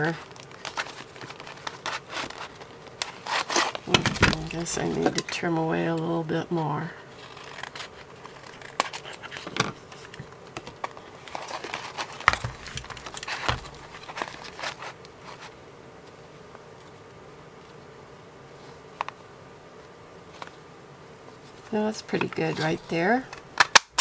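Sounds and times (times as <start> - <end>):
paper rustling: 0.0 - 5.5, 7.1 - 16.2.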